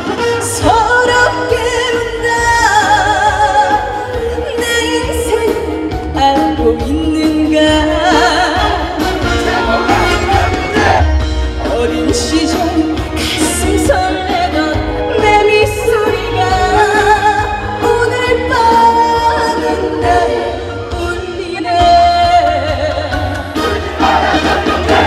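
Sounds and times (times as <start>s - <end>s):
woman singing into microphone: 0.0s - 9.0s, 11.5s - 23.5s
backing music: 0.0s - 25.0s.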